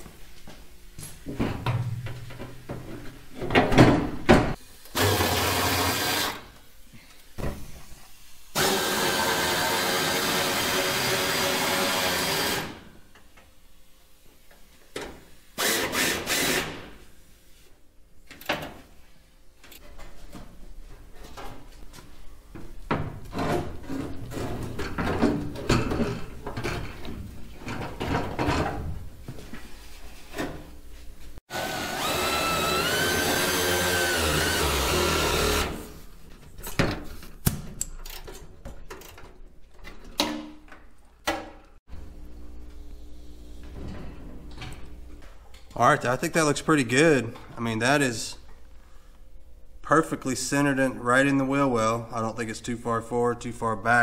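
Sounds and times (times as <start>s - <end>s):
power drill running: 4.9s - 6.5s, 8.6s - 12.8s, 15.6s - 16.7s, 31.5s - 36.0s.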